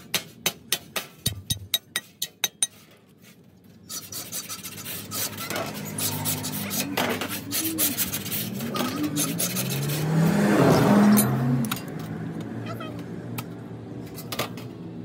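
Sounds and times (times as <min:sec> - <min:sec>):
metal sheet scraping: 0:03.2 - 0:11.9.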